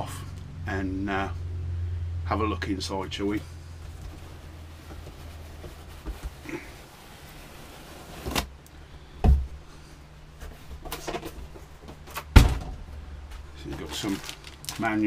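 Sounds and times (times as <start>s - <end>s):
cardboard rustling: 3.4s - 8.5s, 13.5s - 15.0s
cardboard lid scraping slide: 3.9s - 8.5s
dull thump: 9.2s - 9.6s, 12.3s - 12.8s
heavy thump: 9.2s - 9.6s, 12.3s - 12.9s.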